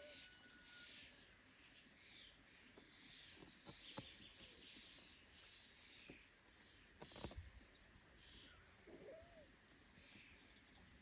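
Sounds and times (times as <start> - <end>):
distant bird chirps: 7.0 - 11.0.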